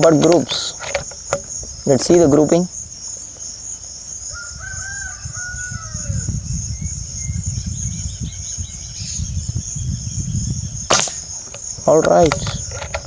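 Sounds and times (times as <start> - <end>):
crickets chirring: 0.0 - 13.0
rooster crowing: 4.3 - 6.3.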